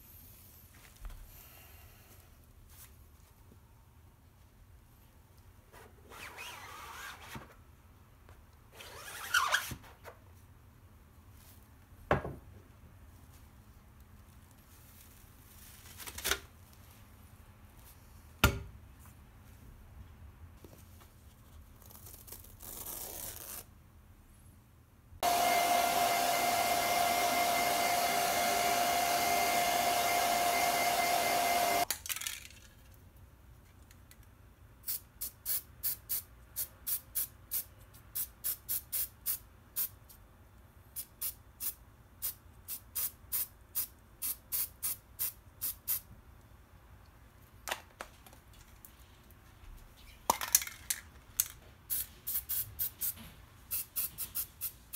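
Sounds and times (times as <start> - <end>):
short spray spritzes: 41.0 - 46.0, 51.9 - 53.1
spray paint can hissing: 51.9 - 53.1.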